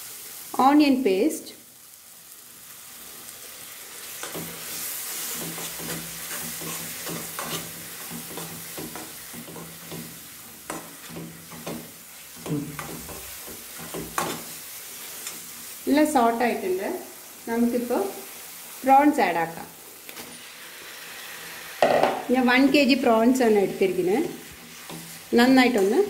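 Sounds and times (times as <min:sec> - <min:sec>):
masala sizzling in a pan: 0:00.0 - 0:26.0
steel spoon scraping and tapping pan: 0:04.2 - 0:14.6, 0:24.5 - 0:26.0.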